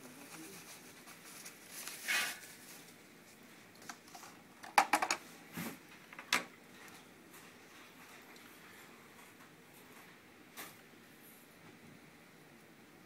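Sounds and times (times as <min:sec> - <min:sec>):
foam bag rustling: 0:00.0 - 0:03.1
plastic phone clicks and knocks: 0:04.6 - 0:05.2.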